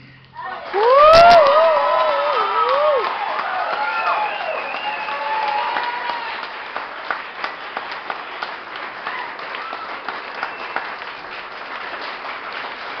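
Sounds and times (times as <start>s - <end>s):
audience applauding: 0.4s - 13.0s.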